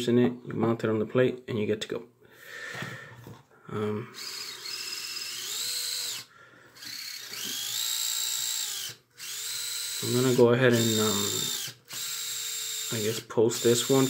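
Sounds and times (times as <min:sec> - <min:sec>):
electric motor whine: 0:04.2 - 0:13.2.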